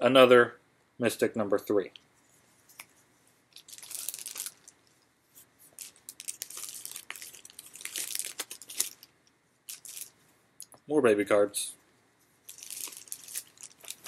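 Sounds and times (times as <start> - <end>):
plastic packaging tearing and crackling: 3.6 - 4.8, 5.8 - 9.1, 9.7 - 10.1, 12.5 - 14.0.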